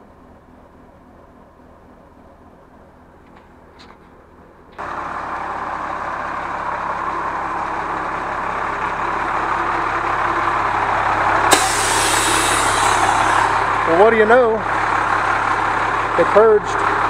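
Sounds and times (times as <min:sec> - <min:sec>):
diesel engine idling: 0:00.0 - 0:17.0
air valve hiss: 0:11.5 - 0:13.6.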